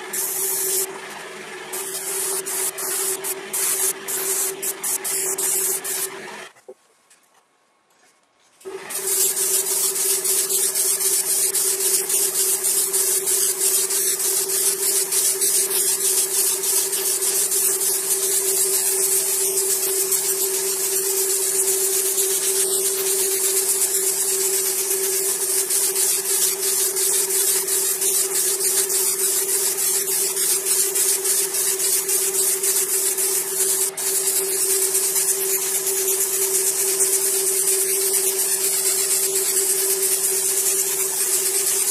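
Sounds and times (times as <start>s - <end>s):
airbrush spraying hiss: 0.0s - 0.9s, 1.7s - 6.2s, 8.8s - 41.9s
steady hum: 0.0s - 6.5s.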